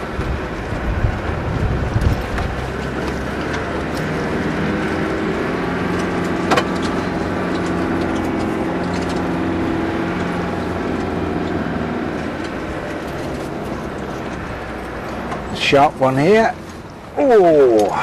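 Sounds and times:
car engine running under load: 0.0s - 18.0s.

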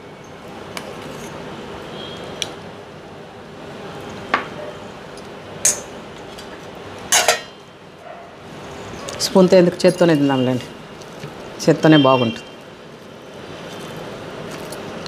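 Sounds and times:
spoon and cup clinking on a plate: 7.1s - 7.6s.

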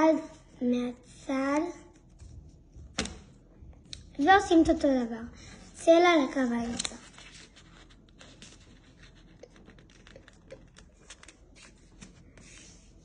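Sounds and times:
paper rustling and creasing: 6.4s - 13.0s.

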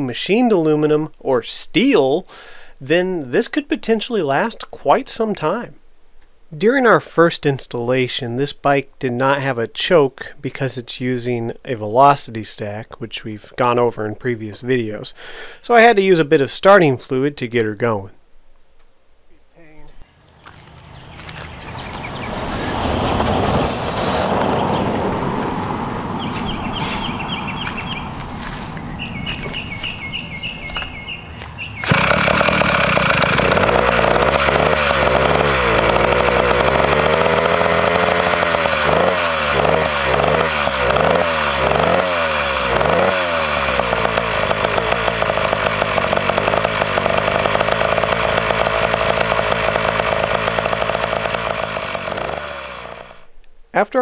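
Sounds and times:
two-stroke engine running: 31.7s - 53.3s
short rattles: 31.8s - 53.2s.

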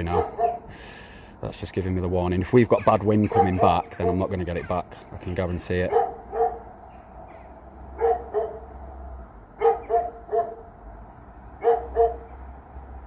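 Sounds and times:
short barking calls: 0.1s - 0.7s, 2.7s - 4.8s, 5.9s - 8.7s, 9.6s - 10.7s.

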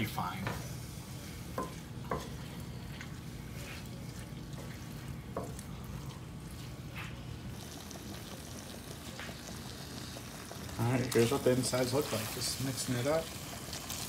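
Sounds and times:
steady low hum: 0.0s - 14.0s
spoon stirring thick filling: 0.3s - 14.0s
spoon scraping pan: 0.5s - 7.6s.

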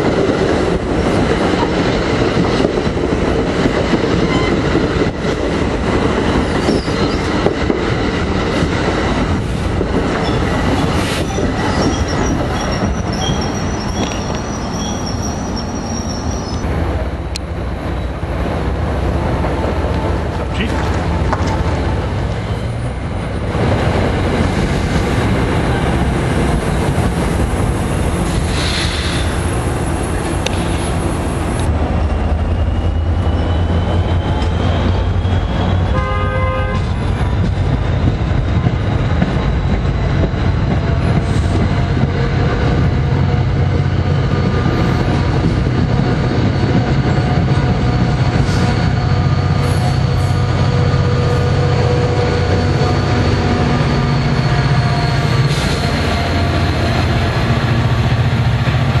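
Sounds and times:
diesel train engine rumble: 0.0s - 59.0s
rail noise: 0.0s - 59.0s
train horn toot: 4.2s - 4.6s, 35.9s - 37.0s.

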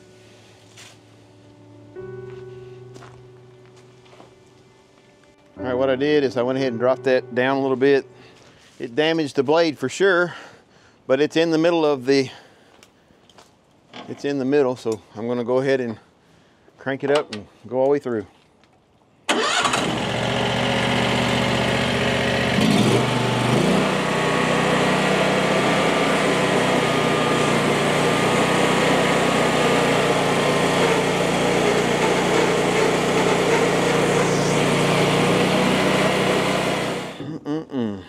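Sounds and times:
small gasoline engine revving: 19.3s - 37.2s
band saw blade sawing log: 26.9s - 37.2s.

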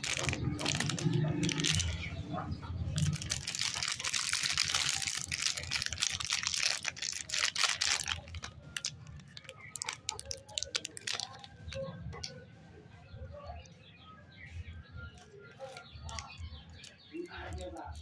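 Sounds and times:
plastic wrapper crinkling: 0.0s - 2.2s, 2.8s - 12.3s, 15.6s - 18.0s.

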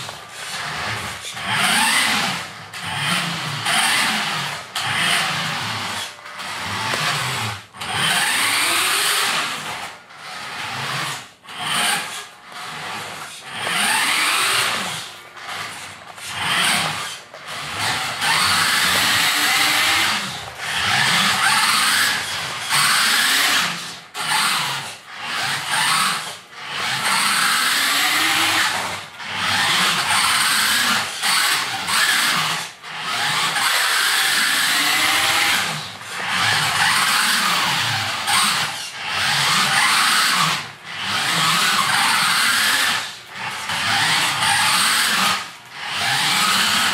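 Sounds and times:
toy car motor whining: 0.0s - 46.9s.

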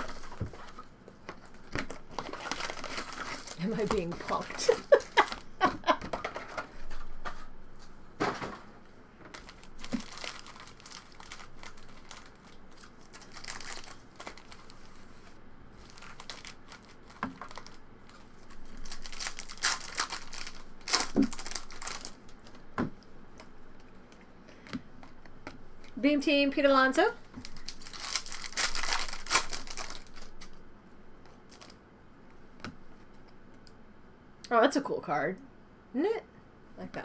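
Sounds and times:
foil wrappers crinkling: 0.0s - 7.4s, 9.3s - 22.7s, 25.8s - 30.6s, 31.4s - 31.8s
packs being torn open: 1.4s - 5.4s, 9.3s - 14.8s, 15.8s - 17.8s, 18.6s - 22.4s, 27.4s - 30.6s, 31.5s - 31.8s.

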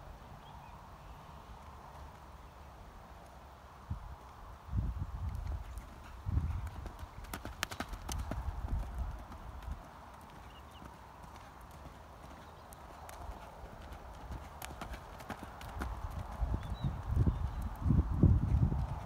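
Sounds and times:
hoofbeats on dirt: 5.2s - 19.0s.

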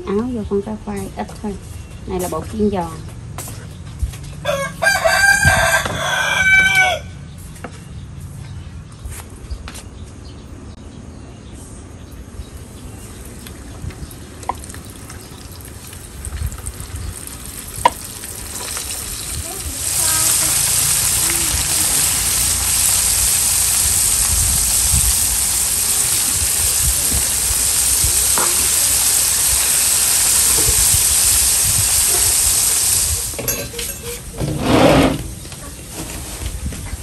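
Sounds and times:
food sizzling in hot oil: 12.4s - 34.4s.

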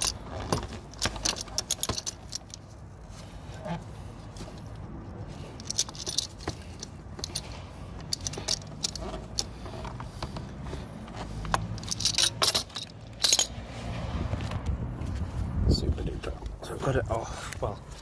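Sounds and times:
metal tools clinking and clicking: 0.0s - 2.9s, 5.4s - 10.3s, 11.4s - 13.6s.

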